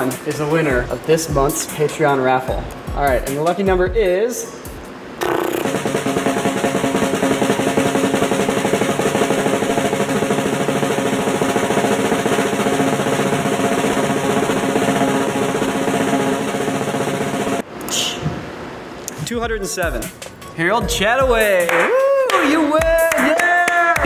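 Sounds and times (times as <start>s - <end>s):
snare drum roll: 5.2s - 17.6s.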